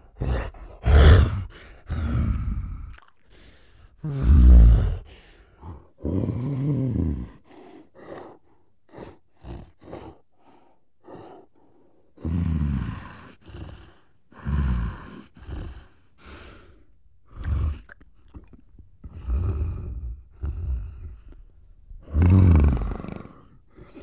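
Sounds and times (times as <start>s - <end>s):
gorilla huffing breaths: 0.0s - 2.6s, 7.2s - 12.2s, 12.9s - 17.8s
deep gorilla grunts: 0.0s - 2.9s, 4.0s - 8.3s, 8.9s - 10.2s, 19.0s - 21.4s, 22.0s - 24.0s.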